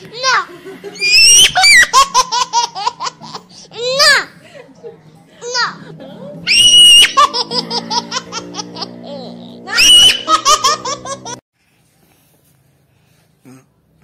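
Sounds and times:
child shrieking with laughter: 0:01.0 - 0:02.0, 0:06.5 - 0:07.2, 0:09.7 - 0:10.7.

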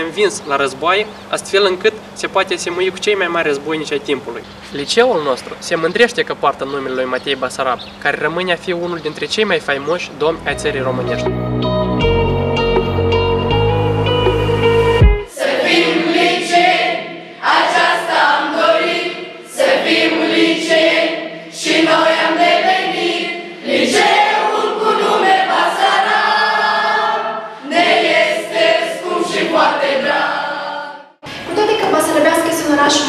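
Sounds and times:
music: 0:10.4 - 0:16.8
children's choir singing: 0:15.3 - 0:31.2.

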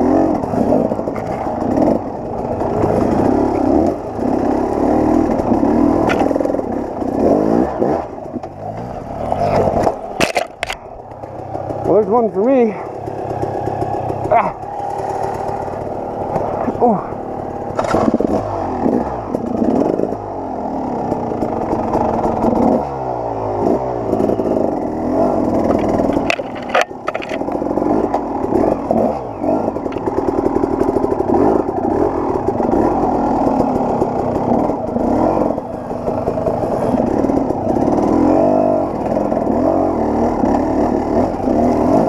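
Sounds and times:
dirt bike engine revving: 0:00.0 - 0:42.0
clatter of sharp knocks: 0:09.8 - 0:11.3, 0:25.6 - 0:28.3.

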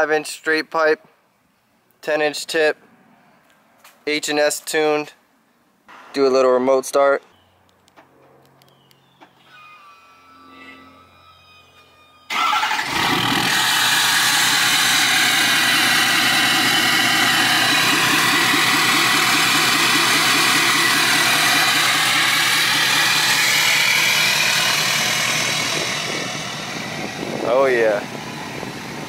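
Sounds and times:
diesel engine starting and idling: 0:12.3 - 0:29.0.

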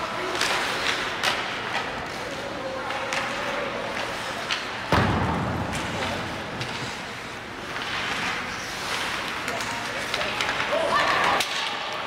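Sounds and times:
hockey stick and puck clicks: 0:00.2 - 0:05.0, 0:07.6 - 0:12.0
loud bang with low thud: 0:04.9 - 0:05.8.

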